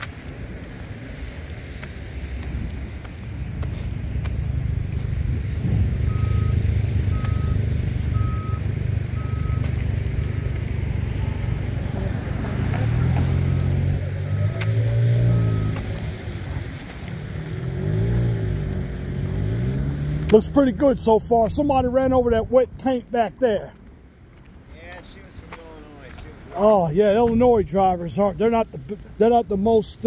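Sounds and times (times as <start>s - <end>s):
heavy vehicle engine running: 1.9s - 22.0s
reversing alarm beeping: 6.0s - 9.7s, 15.2s - 16.0s.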